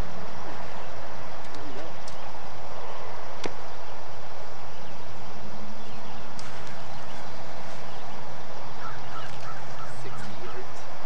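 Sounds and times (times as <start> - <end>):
low steady hum: 0.0 - 11.0
bird calls: 4.7 - 11.0.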